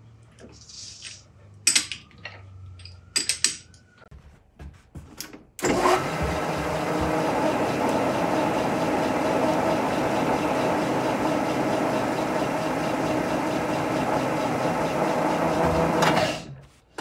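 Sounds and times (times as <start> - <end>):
metal lathe running: 5.6 - 16.4.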